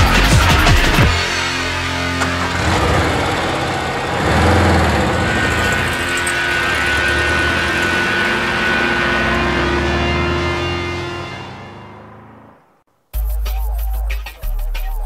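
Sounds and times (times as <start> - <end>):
industrial electronic music: 0.0 - 12.5, 13.1 - 15.0
thin high tone: 3.1 - 12.5.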